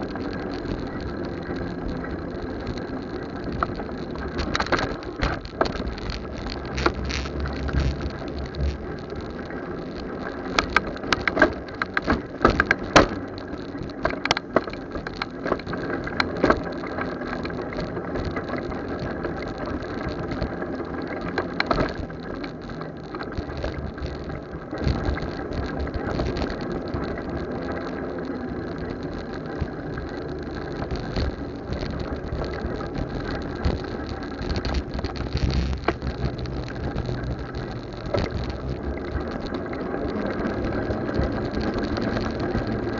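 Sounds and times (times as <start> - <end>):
motorcycle engine and road noise: 0.0 - 42.9.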